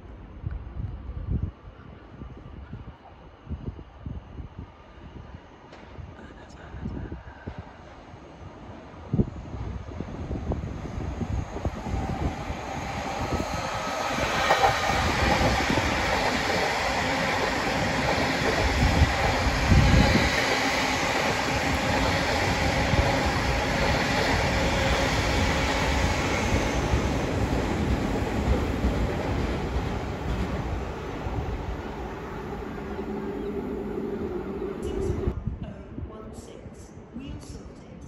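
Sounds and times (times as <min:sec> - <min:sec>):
faint train whine: 0:07.1 - 0:38.0
train wheels rumbling on rails: 0:09.5 - 0:35.4.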